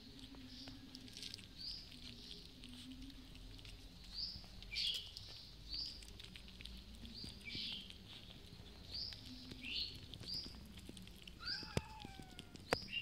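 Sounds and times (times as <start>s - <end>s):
kittens chewing and crunching: 0.0s - 13.0s
high-pitched kitten chirps: 11.4s - 13.0s.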